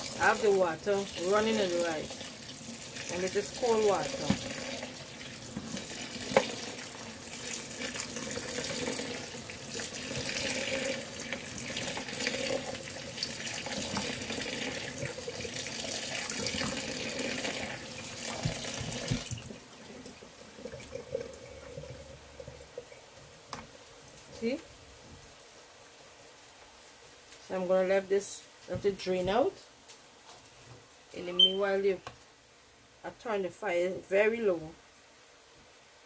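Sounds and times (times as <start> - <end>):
tap water running into sink: 0.0 - 23.8.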